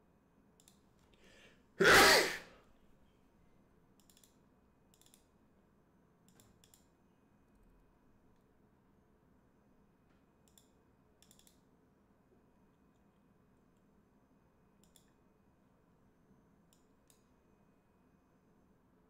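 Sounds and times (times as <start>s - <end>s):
computer mouse clicks: 0.6s - 1.2s, 4.0s - 5.4s, 6.2s - 7.0s, 10.4s - 11.7s, 14.8s - 15.2s, 16.7s - 17.3s
intake of breath: 1.2s - 2.4s
man sneezing: 1.8s - 2.6s.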